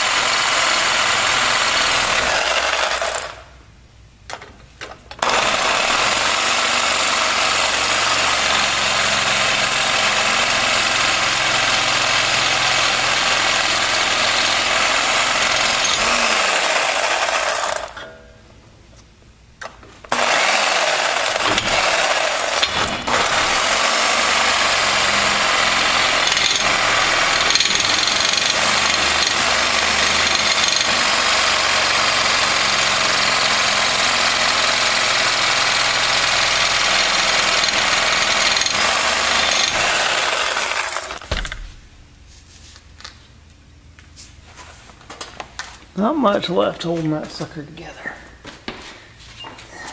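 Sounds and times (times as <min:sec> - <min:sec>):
reciprocating saw cutting steel: 0:05.2 - 0:18.0, 0:20.1 - 0:41.2.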